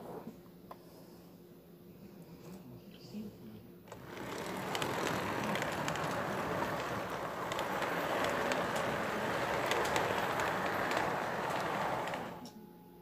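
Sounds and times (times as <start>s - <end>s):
model train wheels clattering: 3.9s - 12.5s.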